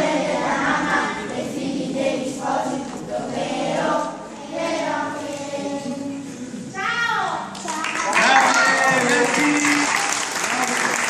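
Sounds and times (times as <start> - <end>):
children's choir singing: 0.0 - 6.6.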